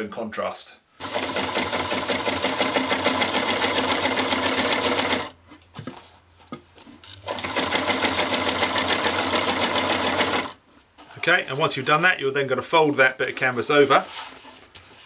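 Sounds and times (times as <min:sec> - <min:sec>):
sewing machine stitching: 0:01.0 - 0:05.4, 0:07.2 - 0:10.6.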